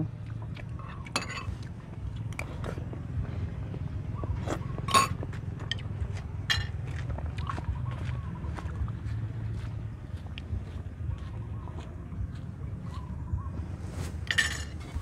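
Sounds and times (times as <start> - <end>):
steady low rumble: 0.0 - 15.0
spoons clinking on ceramic bowls: 1.1 - 1.5, 4.9 - 5.8, 6.5 - 6.8, 14.2 - 15.0.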